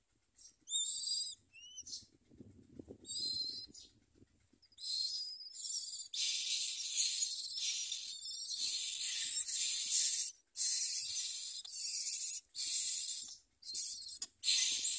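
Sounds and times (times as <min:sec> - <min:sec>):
nestlings begging calls: 0:00.7 - 0:02.0, 0:04.8 - 0:14.9
harsh hissing begging chorus: 0:06.1 - 0:14.9.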